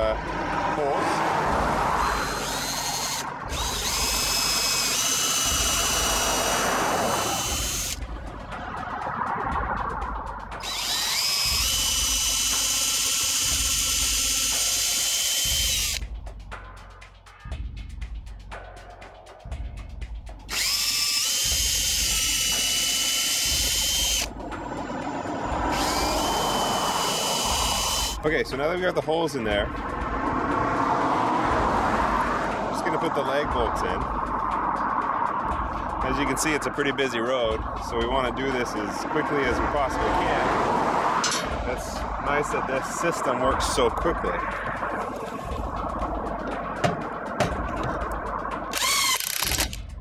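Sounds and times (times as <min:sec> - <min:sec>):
cordless drill boring into wood: 0:02.0 - 0:08.0, 0:10.6 - 0:16.0, 0:20.5 - 0:24.3, 0:25.7 - 0:28.2, 0:48.7 - 0:49.8.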